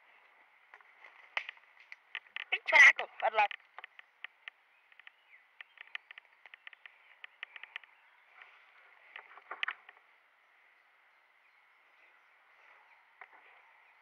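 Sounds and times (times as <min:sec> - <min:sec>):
loud crackle: 0:01.2 - 0:02.6.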